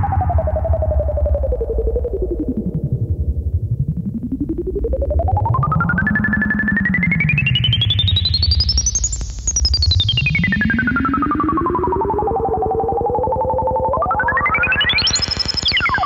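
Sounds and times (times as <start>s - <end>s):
filtered synthesizer sawtooth tone: 10.2s - 16.0s.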